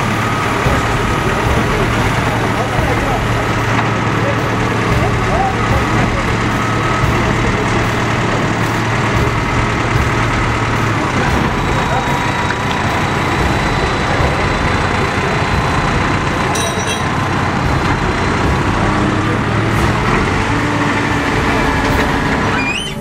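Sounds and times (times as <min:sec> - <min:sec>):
heavy machinery diesel engines: 0:00.0 - 0:23.0
short high clink: 0:16.5 - 0:17.1.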